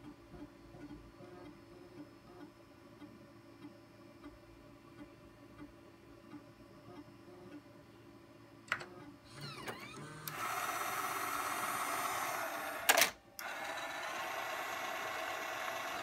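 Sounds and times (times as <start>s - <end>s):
mechanical whirring: 9.3s - 16.0s.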